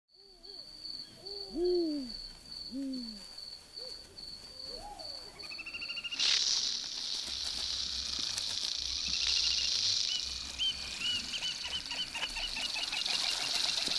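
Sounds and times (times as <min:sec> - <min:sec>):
insect chirping: 0:00.1 - 0:13.9
low hooting calls: 0:00.2 - 0:06.2
porcupine quills rattling: 0:06.1 - 0:13.9.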